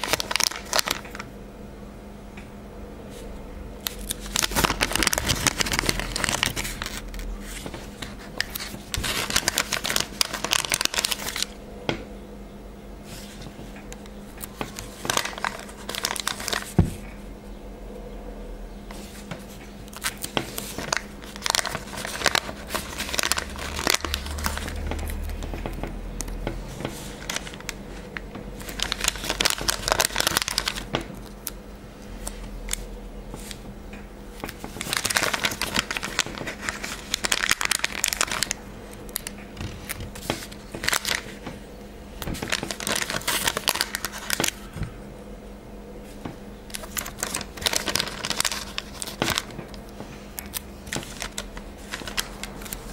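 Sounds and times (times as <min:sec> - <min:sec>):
sticker sheet crinkling: 0:00.0 - 0:01.3, 0:03.8 - 0:11.6, 0:14.3 - 0:17.1, 0:18.9 - 0:31.6, 0:34.4 - 0:41.6, 0:42.2 - 0:44.7, 0:46.7 - 0:52.9.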